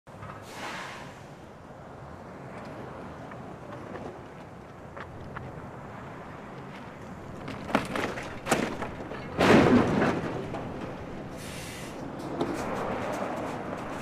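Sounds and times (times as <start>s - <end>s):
wind: 0.0s - 14.0s
traffic: 0.1s - 14.0s
loud vehicle impact: 7.3s - 14.0s.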